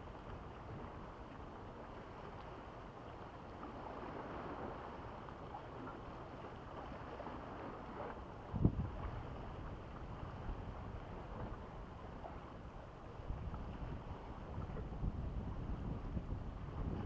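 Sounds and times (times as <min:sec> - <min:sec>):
wind rumbling on microphone: 0:00.0 - 0:17.0
sea washing against rocks: 0:13.6 - 0:17.0.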